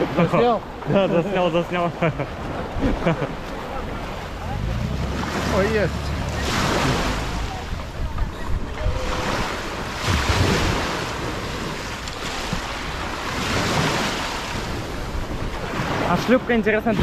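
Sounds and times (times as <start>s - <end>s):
water washing: 0.0s - 17.0s
wind buffeting microphone: 2.3s - 17.0s
low rumble: 3.9s - 9.0s.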